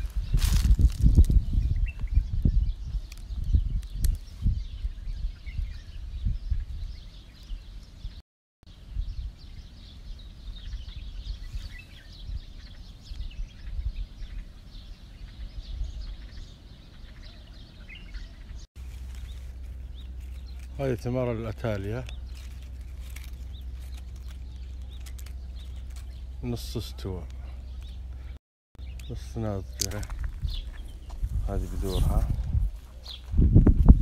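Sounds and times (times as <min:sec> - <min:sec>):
wind on microphone: 0:00.0 - 0:18.6, 0:29.8 - 0:34.0
birds chirping: 0:00.0 - 0:34.0.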